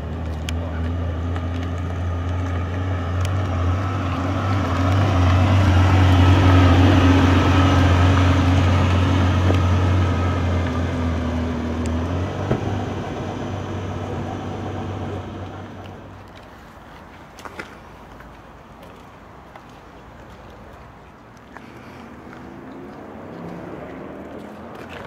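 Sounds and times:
car engine running at low revs: 0.0s - 16.4s.

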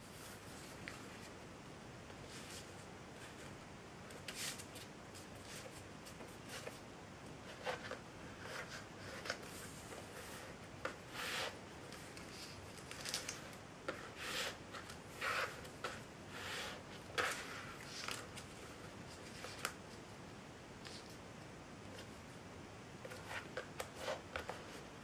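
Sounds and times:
paper rustling: 11.8s - 16.0s, 17.2s - 20.0s.

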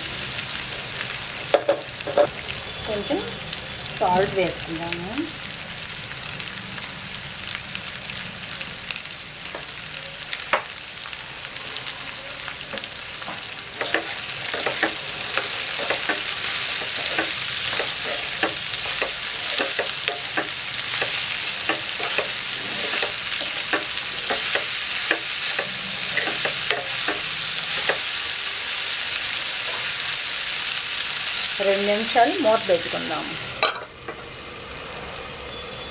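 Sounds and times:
vegetables sizzling in hot oil: 0.0s - 35.9s
spatula scraping and knocking pan: 13.8s - 28.1s.

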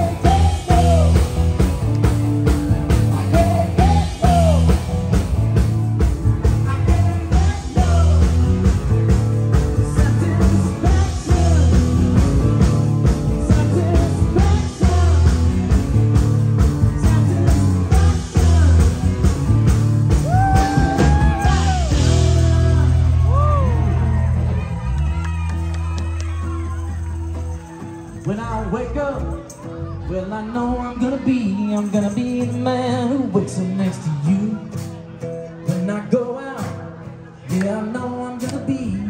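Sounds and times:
drum beat: 0.0s - 23.4s
heavy bass: 0.0s - 31.4s.

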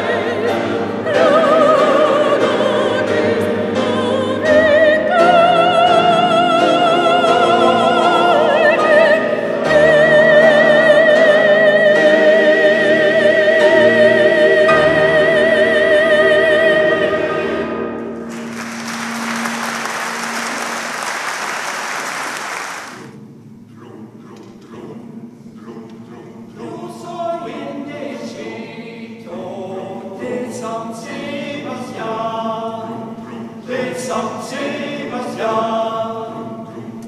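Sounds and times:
men's choir singing: 0.0s - 17.7s, 23.8s - 37.0s
soprano singing with vibrato: 0.0s - 17.8s, 23.9s - 37.0s
audience applauding: 18.3s - 23.1s.

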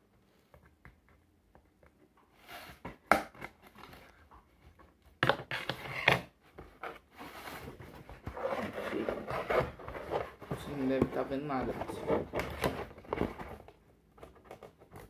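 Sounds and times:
cardboard rustling and scraping: 2.3s - 4.2s, 5.4s - 15.0s.

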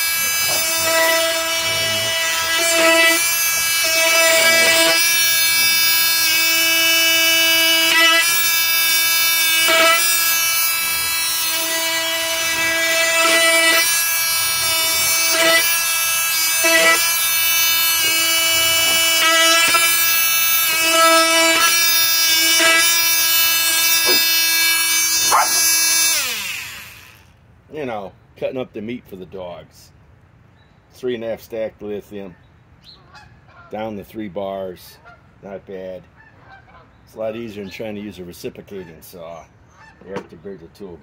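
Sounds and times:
oscillating multi-tool buzzing: 0.0s - 27.4s.

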